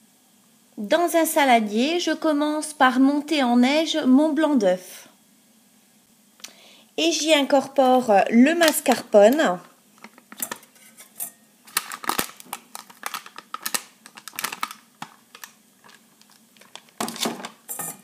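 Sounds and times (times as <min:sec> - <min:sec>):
spoon scraping metal bowl: 0:10.4 - 0:11.4, 0:17.7 - 0:18.0.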